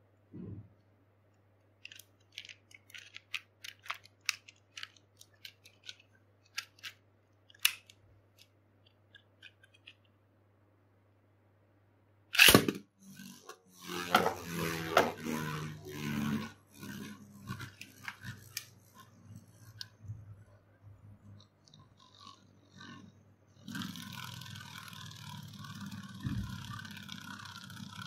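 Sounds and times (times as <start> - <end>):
spinning top clattering: 1.8 - 10.0, 12.4 - 20.4, 23.7 - 28.0
launcher snap: 12.3 - 12.8.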